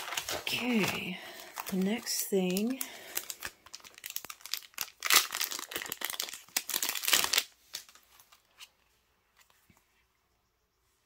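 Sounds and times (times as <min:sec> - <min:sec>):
cellophane packet crinkling: 0:00.0 - 0:08.8.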